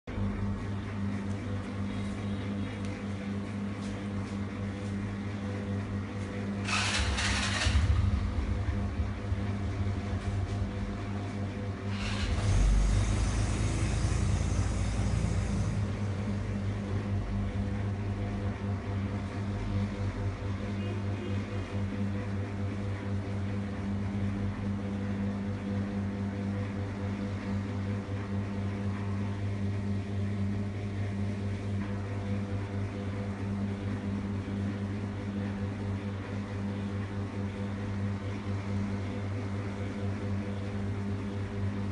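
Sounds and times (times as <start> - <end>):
low mechanical hum: 0.0 - 41.9.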